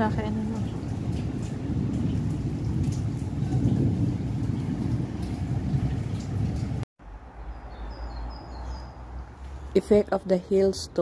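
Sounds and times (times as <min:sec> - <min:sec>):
heavy rain falling: 0:00.0 - 0:06.8.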